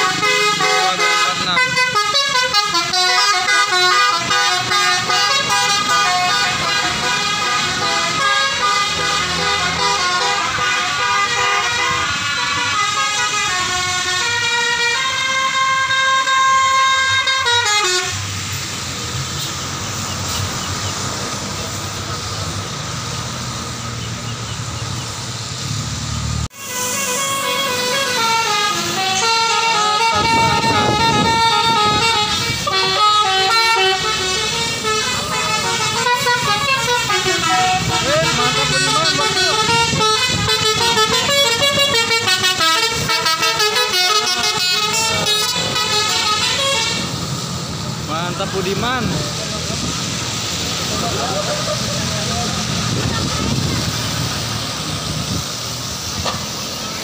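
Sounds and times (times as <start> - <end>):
musical air horn tune: 0.0 - 18.3, 26.5 - 47.1
bus engine driving past: 0.0 - 57.0
tyres on wet road: 0.0 - 57.0.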